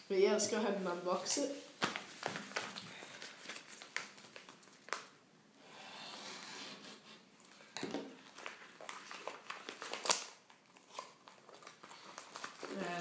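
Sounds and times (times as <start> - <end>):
plastic bag crinkling: 8.2 - 13.0.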